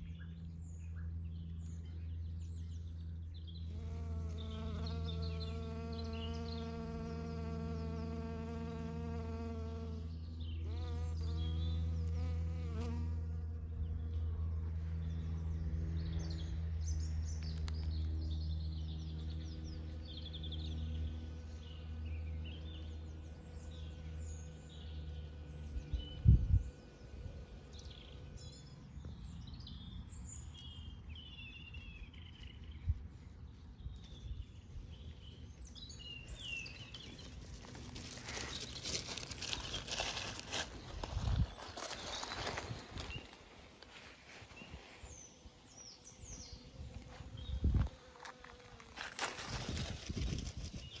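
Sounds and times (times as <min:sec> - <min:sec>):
small birds chirping: 0:00.0 - 0:51.0
honeybee buzzing: 0:03.6 - 0:14.6, 0:45.1 - 0:49.8.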